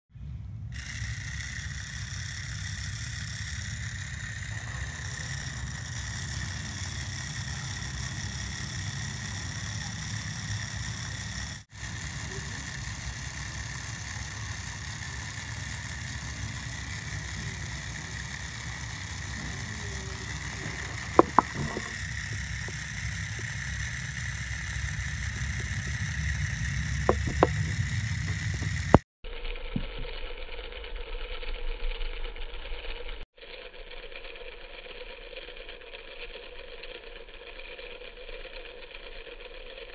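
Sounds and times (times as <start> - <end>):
small electric motor whining: 0.7 - 39.9
sharp taps: 20.3 - 22.8, 27.0 - 29.0.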